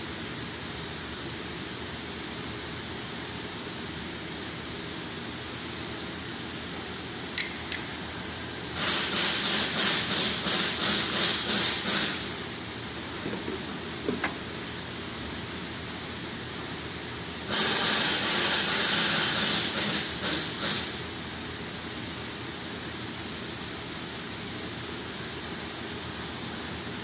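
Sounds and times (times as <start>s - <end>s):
pressurised jet hissing: 8.6s - 13.1s, 17.5s - 21.0s.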